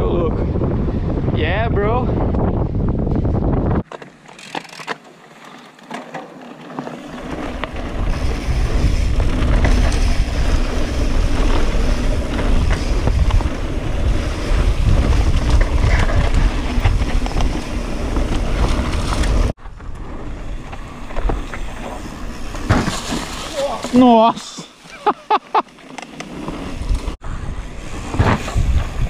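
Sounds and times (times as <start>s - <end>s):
wind buffeting microphone: 0.0s - 3.9s, 7.4s - 21.5s, 26.7s - 29.0s
bike clicks: 3.8s - 22.7s
tyres running over dirt: 3.8s - 29.0s.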